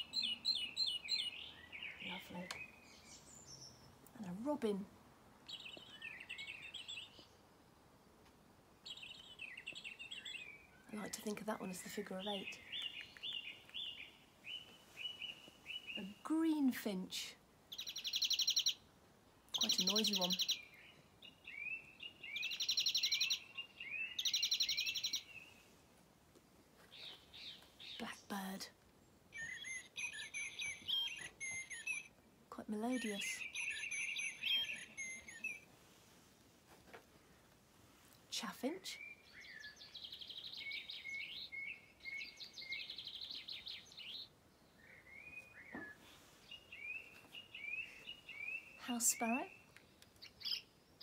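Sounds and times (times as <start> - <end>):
recorded bird trilling and twittering: 0.0 - 3.8, 17.7 - 18.9, 19.5 - 25.4, 29.3 - 32.1, 32.8 - 35.7, 39.0 - 50.8.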